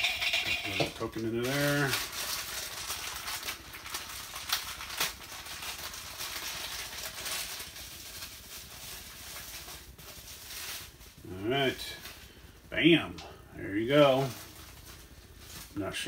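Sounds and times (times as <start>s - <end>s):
packaging rustling and crinkling: 0.6s - 12.8s, 13.6s - 16.0s.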